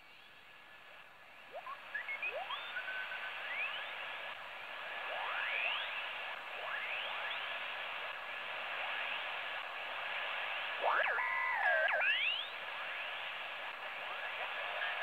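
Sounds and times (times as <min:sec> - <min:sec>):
radio band noise hiss: 0:00.0 - 0:15.0
rising radio whistles: 0:01.5 - 0:04.3, 0:10.8 - 0:13.2.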